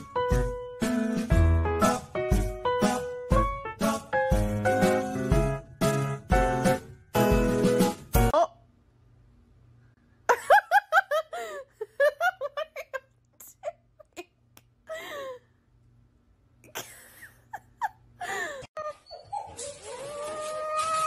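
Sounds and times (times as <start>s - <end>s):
person giggling and laughing: 10.3s - 15.4s, 16.7s - 19.0s.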